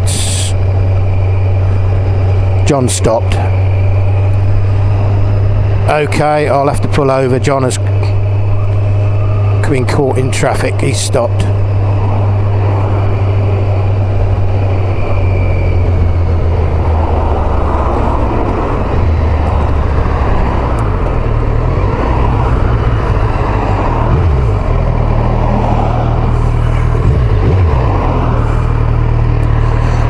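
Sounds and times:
motorcycle engine running: 0:00.0 - 0:30.0
wind rush on microphone: 0:11.7 - 0:28.9.

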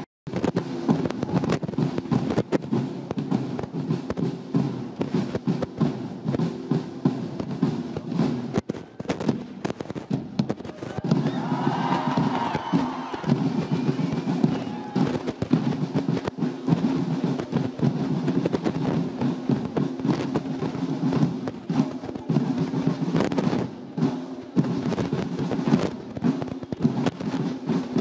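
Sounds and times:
snare and bass drums playing: 0:00.0 - 0:28.0
voices: 0:10.6 - 0:15.3.

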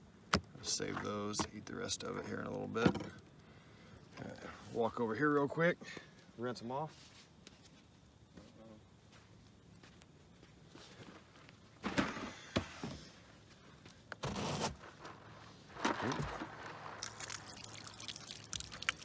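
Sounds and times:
water running from a spigot: 0:17.0 - 0:19.0
water splashing over hands: 0:17.0 - 0:19.0.

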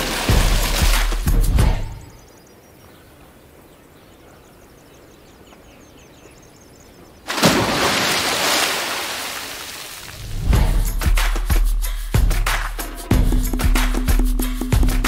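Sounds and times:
loud splash in swimming pool: 0:00.0 - 0:01.5, 0:07.3 - 0:10.4
birds chirping faintly: 0:01.5 - 0:07.9.

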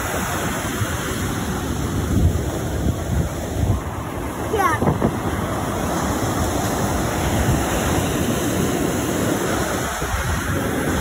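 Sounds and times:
ocean surf rushing: 0:00.0 - 0:11.0
wind on microphone: 0:00.0 - 0:11.0.

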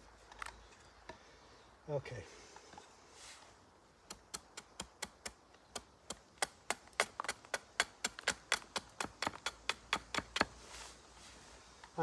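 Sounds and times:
knife chopping wood: 0:04.0 - 0:10.6.

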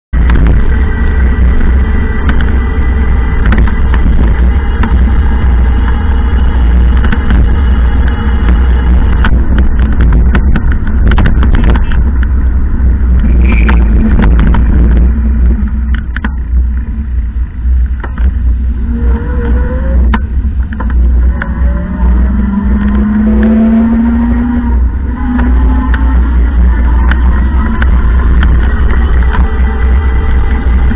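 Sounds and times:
vehicle road rumble: 0:00.1 - 0:30.9
tone rising in pitch: 0:13.2 - 0:16.0, 0:18.7 - 0:20.2, 0:21.0 - 0:29.8.

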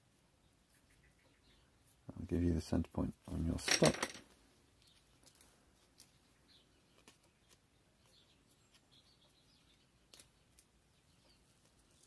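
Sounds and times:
fingers handling masking tape: 0:08.4 - 0:10.8.

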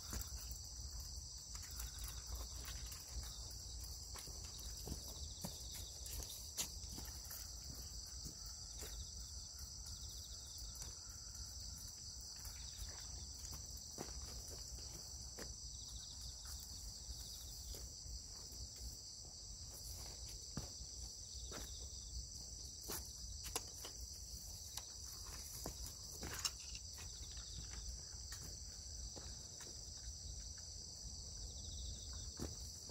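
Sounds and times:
insects chirring: 0:00.0 - 0:32.9.

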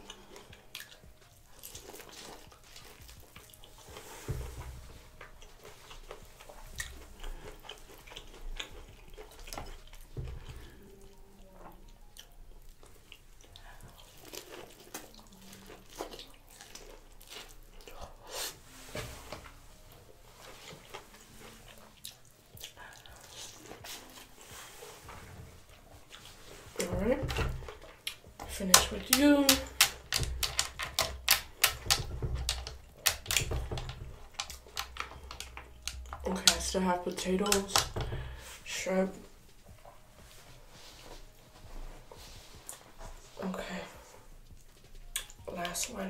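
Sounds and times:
person chewing corn on the cob: 0:00.0 - 0:04.2, 0:05.0 - 0:18.3, 0:19.8 - 0:25.0, 0:27.6 - 0:28.4, 0:29.7 - 0:36.2, 0:44.3 - 0:45.4.

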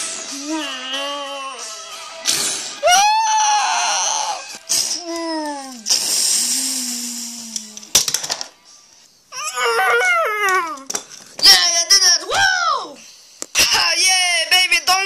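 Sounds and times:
person wailing in pain: 0:02.8 - 0:04.4, 0:09.4 - 0:10.9.

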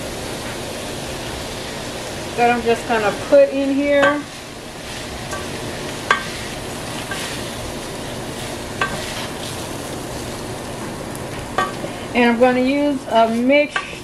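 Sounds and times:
rice sizzling in a pan: 0:00.0 - 0:14.0
spoon knocking against pan: 0:06.1 - 0:06.3.

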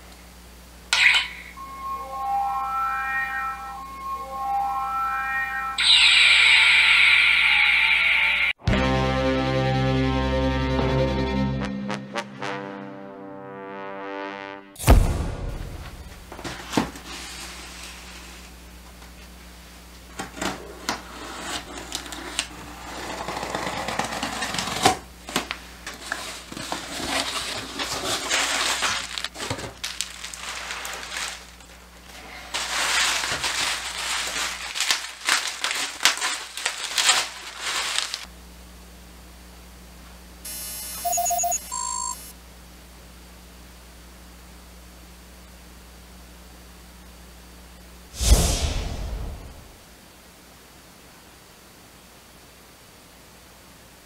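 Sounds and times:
electronic beeping: 0:01.2 - 0:08.0, 0:40.5 - 0:42.3
plastic rustling and crinkling: 0:23.5 - 0:38.3.

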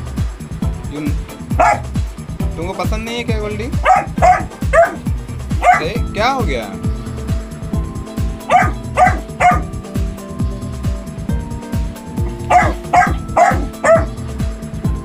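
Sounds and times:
puppy barking: 0:01.6 - 0:01.9, 0:03.8 - 0:06.0, 0:08.4 - 0:09.7, 0:12.2 - 0:14.1.

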